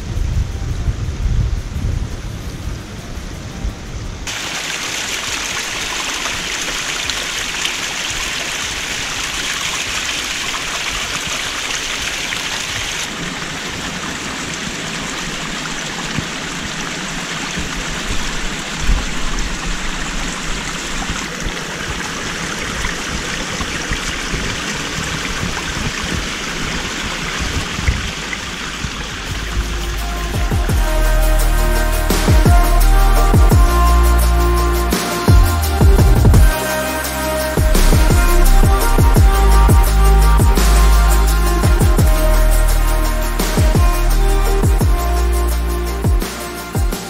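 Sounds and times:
stream splashing over rocks: 0:04.3 - 0:31.0.

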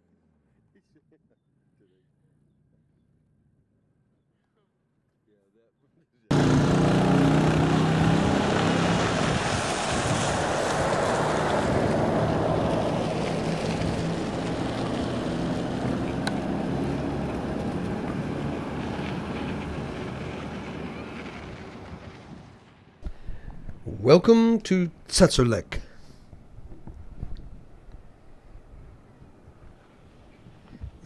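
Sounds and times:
vehicle engine hum: 0:06.3 - 0:23.9
road noise: 0:06.3 - 0:31.0
wind rush: 0:07.6 - 0:24.0, 0:26.4 - 0:31.0.

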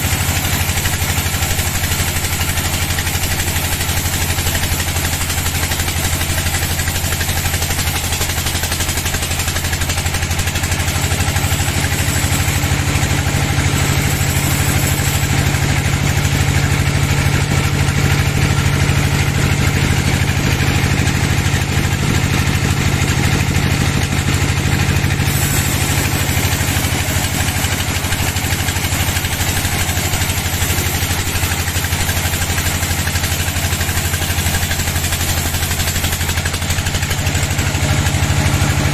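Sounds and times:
band saw cutting log: 0:00.0 - 0:38.9.

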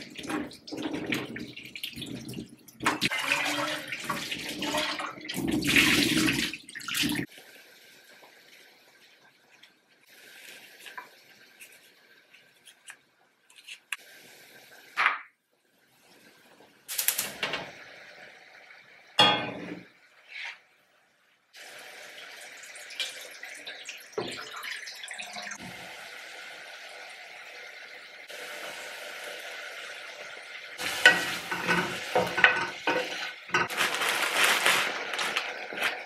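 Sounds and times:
water pouring into a pan: 0:00.0 - 0:12.6, 0:21.6 - 0:36.0
pans clanking on a hob: 0:19.2 - 0:19.9, 0:30.8 - 0:33.8.

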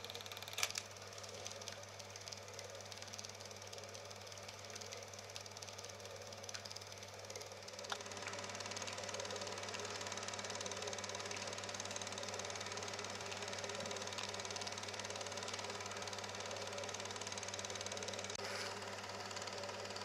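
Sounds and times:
projector click: 0:00.0 - 0:03.8, 0:07.7 - 0:18.4
film projector running: 0:00.0 - 0:20.0.

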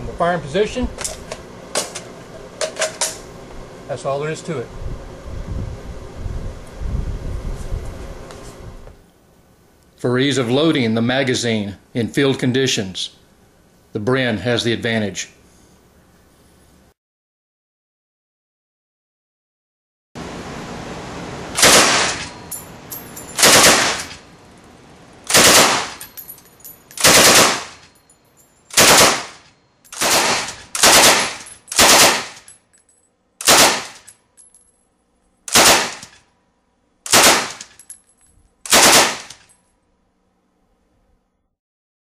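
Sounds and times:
machine gun bursts: 0:21.6 - 0:22.4, 0:23.3 - 0:24.2, 0:25.3 - 0:26.0, 0:27.0 - 0:27.9, 0:28.7 - 0:32.5, 0:33.4 - 0:34.1, 0:35.5 - 0:36.1, 0:37.1 - 0:37.7, 0:38.7 - 0:39.4.

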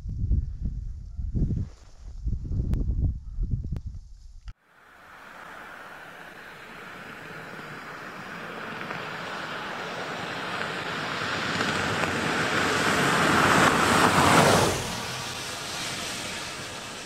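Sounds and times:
vehicle driving past on dirt road: 0:04.7 - 0:17.0.

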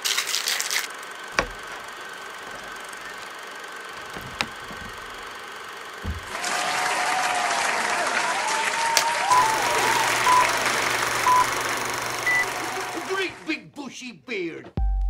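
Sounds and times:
low thump: 0:04.0 - 0:05.4, 0:06.0 - 0:06.4.

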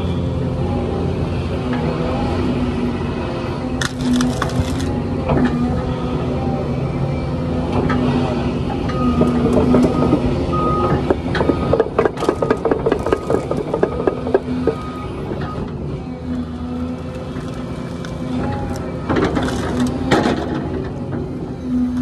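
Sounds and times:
excavator engine and hydraulics: 0:00.0 - 0:22.0
branches cracking and snapping: 0:03.8 - 0:05.0, 0:17.0 - 0:20.0.

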